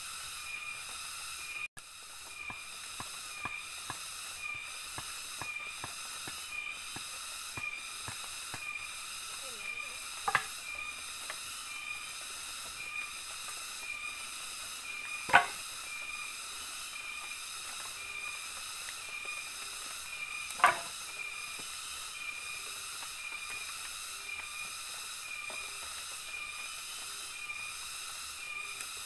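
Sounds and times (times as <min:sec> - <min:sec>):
forest insects droning: 0:00.0 - 0:29.0
wood knocks: 0:10.3 - 0:10.5, 0:15.3 - 0:15.6, 0:20.6 - 0:20.9.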